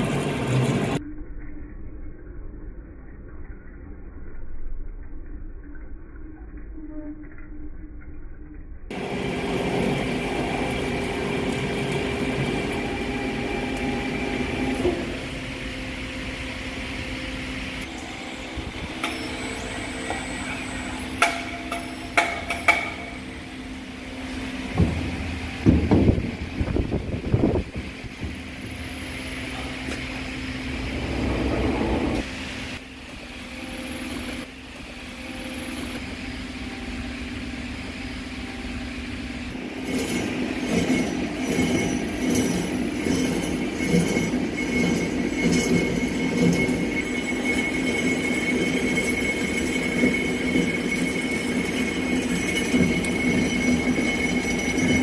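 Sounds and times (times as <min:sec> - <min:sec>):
metal lathe running: 0:08.9 - 0:55.0.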